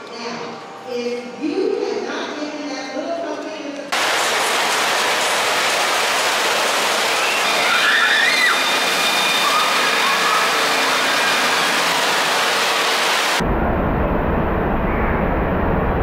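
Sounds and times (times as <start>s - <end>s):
flowing splashing water: 3.9s - 13.4s
faint high voices calling: 7.4s - 11.8s.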